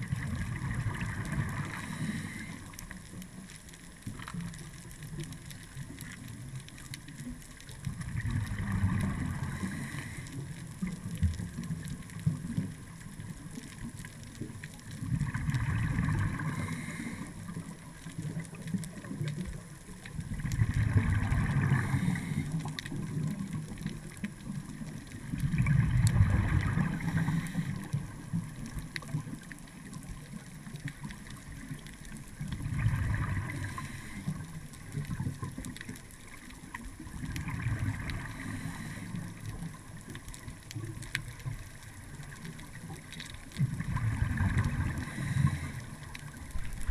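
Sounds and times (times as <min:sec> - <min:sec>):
underwater regulator bubbling exhalations: 0:25.4 - 0:28.0, 0:43.6 - 0:46.9.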